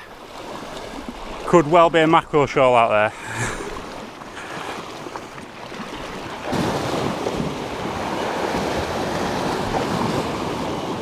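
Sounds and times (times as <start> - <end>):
waves breaking over rocks: 0.0 - 11.0
wind buffeting microphone: 3.2 - 11.0.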